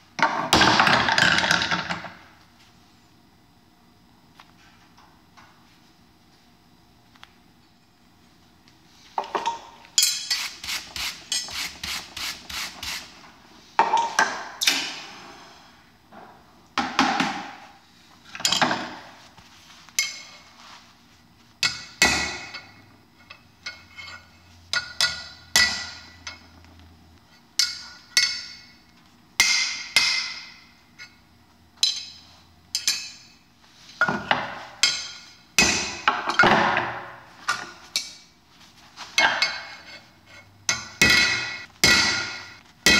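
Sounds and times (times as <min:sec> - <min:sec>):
hammer striking steel on anvil: 0:24.7 - 0:26.4, 0:27.6 - 0:28.8, 0:29.4 - 0:30.7, 0:31.8 - 0:33.4, 0:34.8 - 0:36.4, 0:40.7 - 0:42.9.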